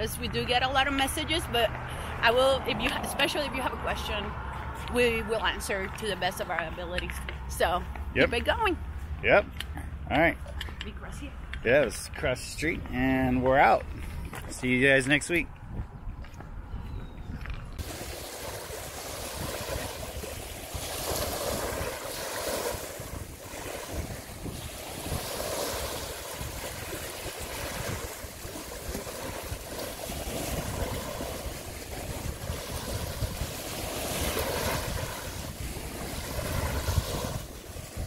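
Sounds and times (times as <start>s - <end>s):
wind buffeting microphone: 9.9s - 38.0s
small waves washing onto beach: 17.8s - 38.0s.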